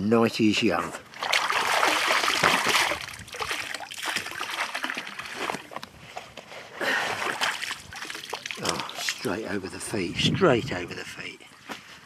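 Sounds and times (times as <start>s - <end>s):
water splashing off fabric: 1.1s - 5.7s, 7.0s - 9.4s.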